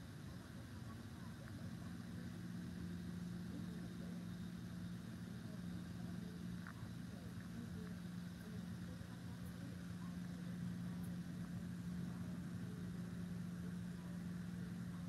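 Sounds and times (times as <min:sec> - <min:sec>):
low mechanical hum: 0:00.0 - 0:15.0
faint ticks: 0:05.7 - 0:12.0.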